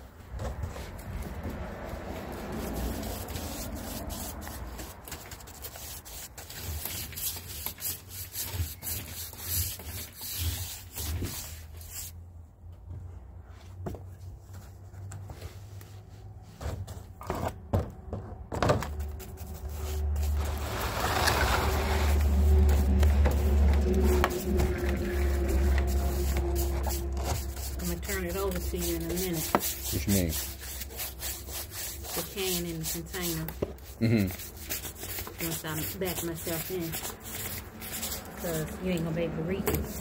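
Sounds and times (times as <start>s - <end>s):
applicator pad rubbing on wood: 0.8s - 12.1s, 21.6s - 40.0s.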